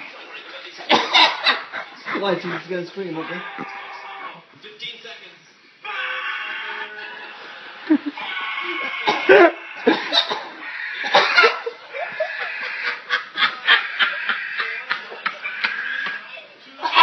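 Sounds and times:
man laughing hard: 0:07.8 - 0:10.3, 0:11.0 - 0:17.0.

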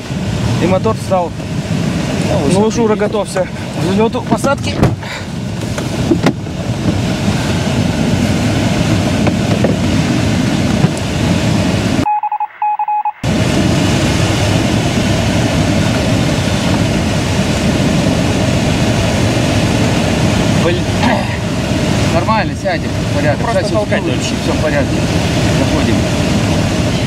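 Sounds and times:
airflow rushing around cockpit: 0:00.0 - 0:12.1, 0:13.2 - 0:27.0
high electronic beeps: 0:12.0 - 0:13.2.

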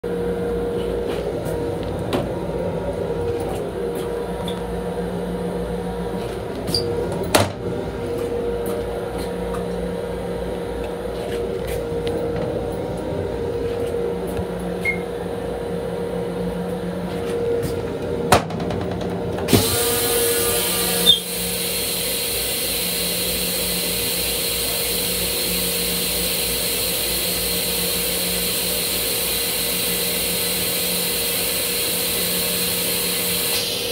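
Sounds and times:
train humming: 0:00.0 - 0:33.9
toilet flush rushing hiss: 0:19.5 - 0:33.9.

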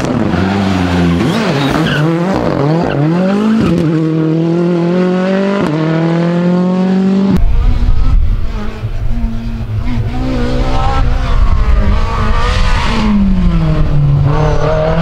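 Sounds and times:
rally car engine accelerating: 0:00.0 - 0:15.0
heavy low rumble: 0:07.4 - 0:12.3.

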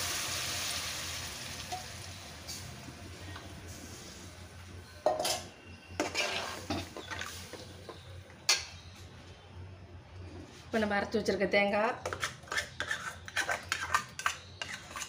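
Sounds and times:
metal ladle scraping a pot: 0:05.1 - 0:08.0, 0:12.0 - 0:15.0.

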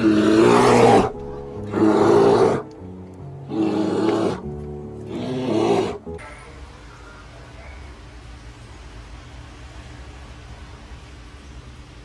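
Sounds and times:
bear roaring: 0:00.0 - 0:02.8, 0:03.4 - 0:06.1
background music: 0:00.0 - 0:06.8.

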